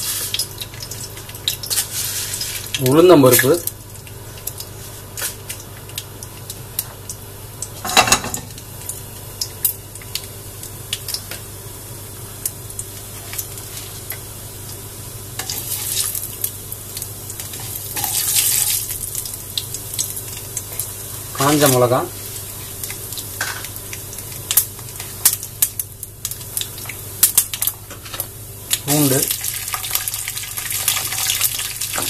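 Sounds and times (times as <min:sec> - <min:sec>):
oil sizzling in a pan: 0:00.0 - 0:32.0.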